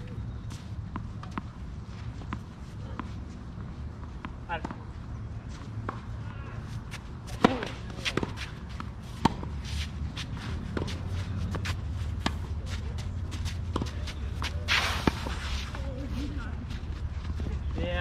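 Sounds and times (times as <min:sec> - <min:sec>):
racket hitting tennis ball: 0:07.3 - 0:15.5.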